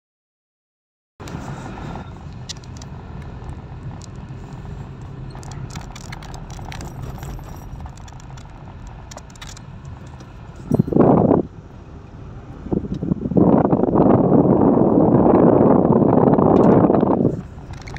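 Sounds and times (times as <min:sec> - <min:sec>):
car engine and tyre rumble: 0:01.2 - 0:17.9
light clicks and rattles: 0:02.3 - 0:11.4, 0:16.5 - 0:17.9.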